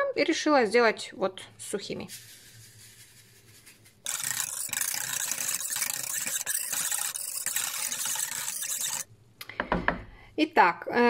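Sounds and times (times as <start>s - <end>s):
spoon mixing in bowl: 2.1s - 9.1s.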